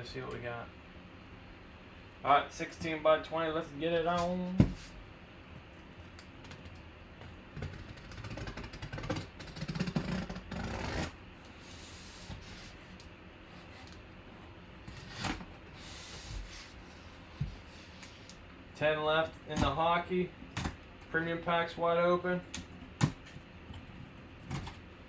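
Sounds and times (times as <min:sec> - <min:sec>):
cardboard scraping and rubbing: 0:07.6 - 0:12.8.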